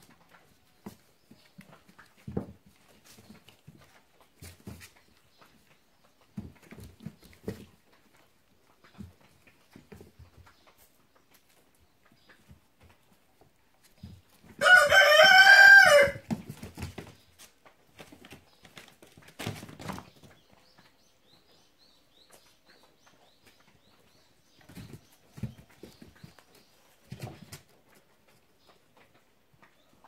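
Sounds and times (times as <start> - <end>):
rooster crowing: 14.6 - 16.2.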